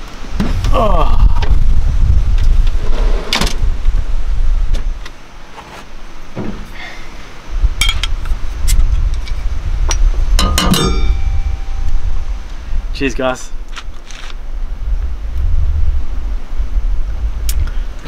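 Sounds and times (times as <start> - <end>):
wind rumble on microphone: 0.0 - 5.2, 6.2 - 18.0.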